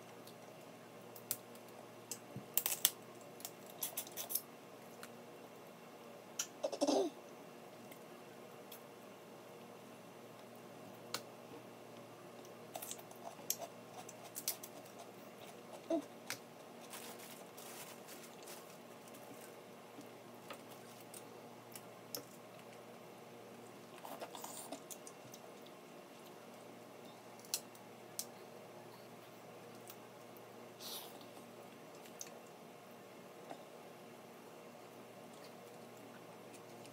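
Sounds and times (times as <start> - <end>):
crab shells cracking: 1.2 - 4.4.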